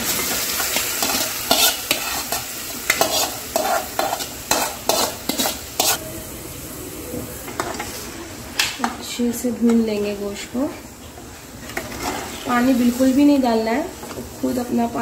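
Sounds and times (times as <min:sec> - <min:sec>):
meat sizzling in hot fat: 0:00.0 - 0:09.3
steel spoon scraping a pot: 0:00.6 - 0:06.0, 0:11.7 - 0:12.5.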